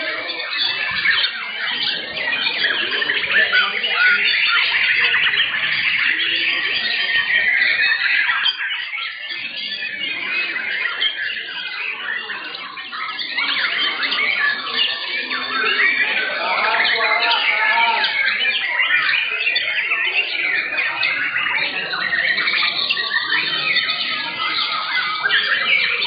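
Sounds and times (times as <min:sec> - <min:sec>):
birds singing whistles and chirps: 0:00.0 - 0:26.0.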